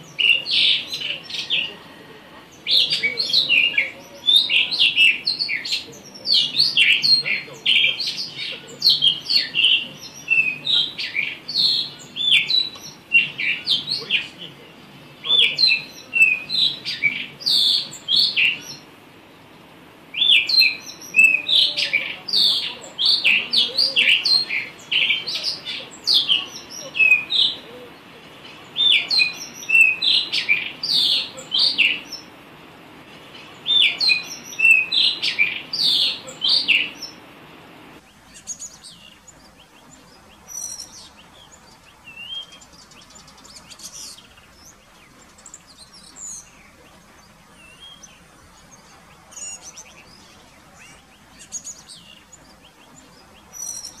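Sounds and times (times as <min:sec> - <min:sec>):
bird singing whistled phrases: 0:28.8 - 0:32.2, 0:33.7 - 0:37.1, 0:38.1 - 0:47.0, 0:47.6 - 0:54.0.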